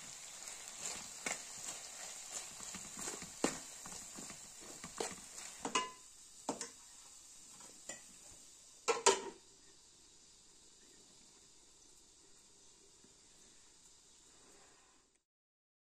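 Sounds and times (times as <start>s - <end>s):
dishes and utensils clinking: 4.9s - 6.8s, 8.9s - 9.4s.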